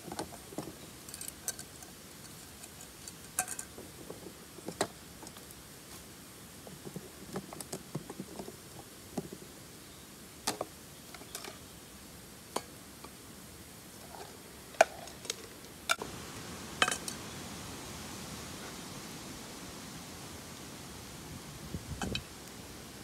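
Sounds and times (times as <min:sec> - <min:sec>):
camping gear clicking and knocking: 0:00.0 - 0:05.5, 0:06.6 - 0:09.5.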